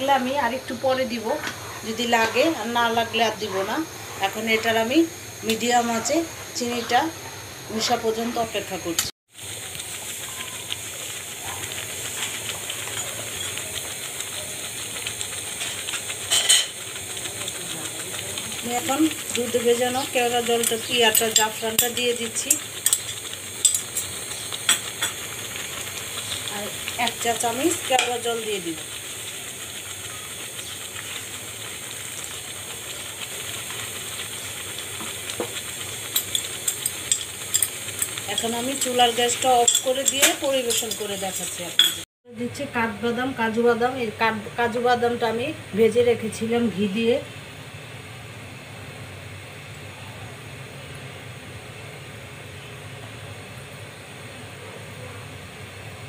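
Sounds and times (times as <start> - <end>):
bubbles popping in simmering pan: 0.0 - 42.7.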